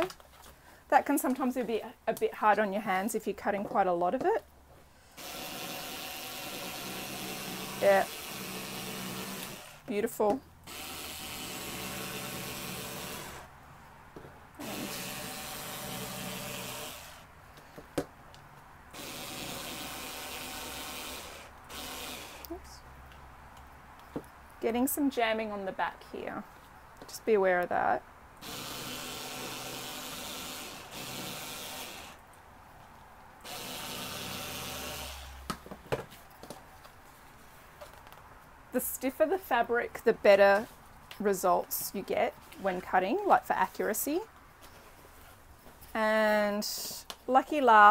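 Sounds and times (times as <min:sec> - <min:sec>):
cordless screwdriver whirring: 0:05.2 - 0:09.8.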